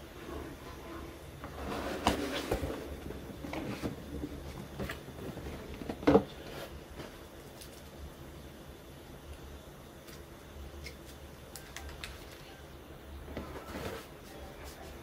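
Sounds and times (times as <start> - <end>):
cardboard box rustling and scraping: 1.4 - 7.2.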